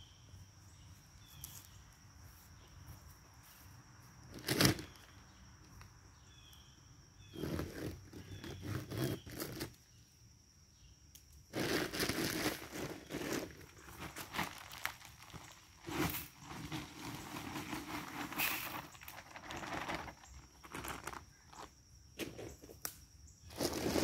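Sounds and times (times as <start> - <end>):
footsteps in dry leaves: 11.6 - 21.2, 23.5 - 24.0
plastic bag crinkling: 11.6 - 21.6.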